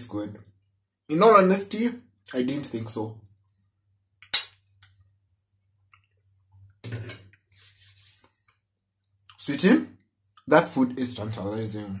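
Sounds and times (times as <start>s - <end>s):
soft chewing: 5.7s - 6.6s.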